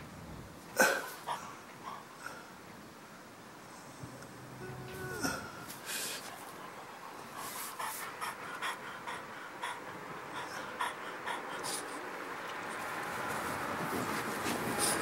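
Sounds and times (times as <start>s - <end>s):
dog panting: 6.2s - 15.0s.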